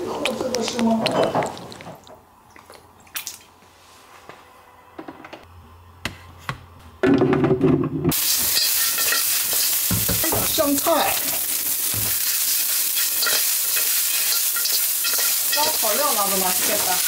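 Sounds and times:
food sizzling in hot oil: 8.1s - 17.0s.

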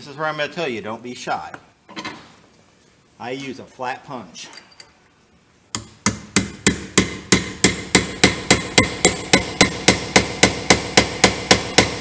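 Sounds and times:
hammer striking metal punch: 5.7s - 12.0s.

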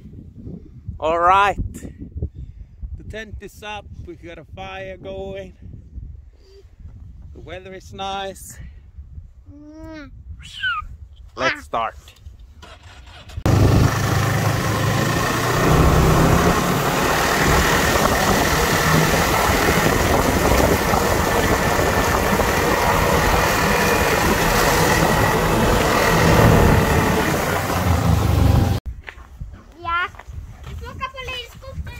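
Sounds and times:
snowmobile engine running: 13.5s - 28.8s.

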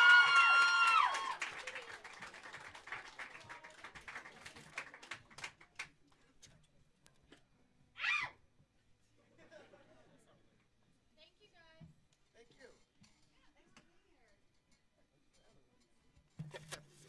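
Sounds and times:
high-pitched cheers: 0.0s - 2.2s
audience applauding: 0.0s - 6.0s.

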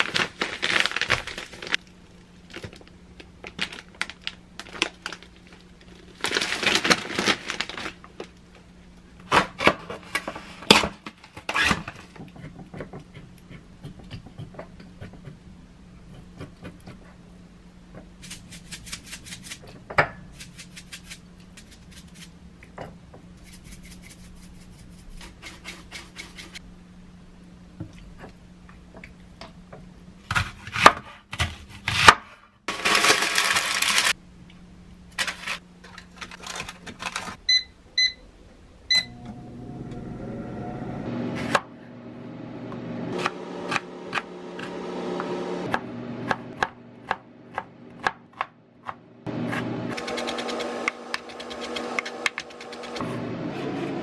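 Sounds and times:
air fryer fan humming: 32.7s - 54.0s
air fryer beeps: 37.5s - 38.2s, 38.9s - 41.0s.

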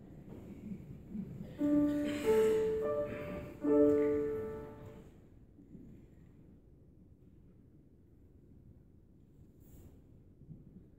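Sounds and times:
grand piano notes and chords: 1.6s - 5.1s.

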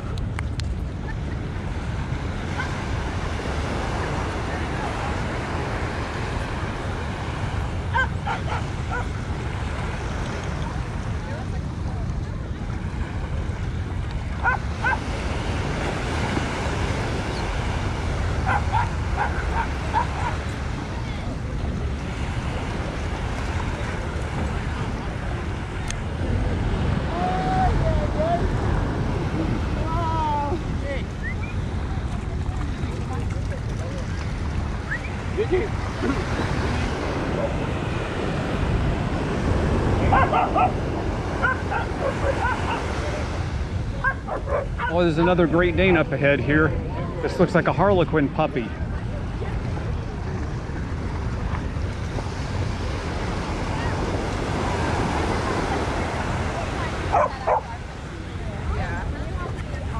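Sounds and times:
ocean surf: 0.0s - 59.9s
wind buffeting microphone: 0.0s - 59.9s
dog barking: 7.9s - 9.1s, 14.4s - 15.0s, 18.4s - 20.4s, 40.0s - 40.8s, 41.4s - 43.0s, 44.0s - 45.0s, 57.1s - 57.7s.

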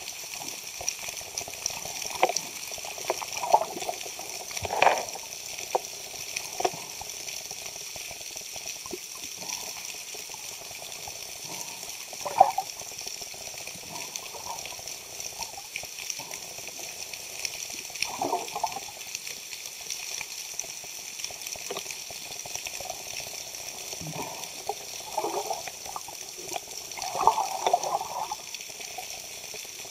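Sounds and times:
bubbling water: 0.0s - 19.5s, 21.3s - 29.9s
underwater hiss: 9.2s - 19.0s, 22.7s - 29.8s.

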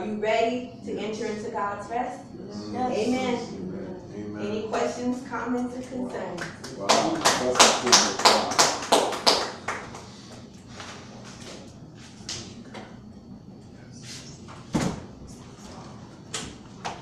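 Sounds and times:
people clapping: 6.1s - 11.0s.

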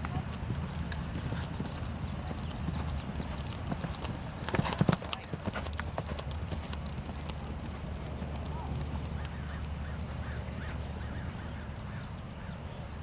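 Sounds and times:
horse hoofbeats on sand: 0.0s - 9.8s.

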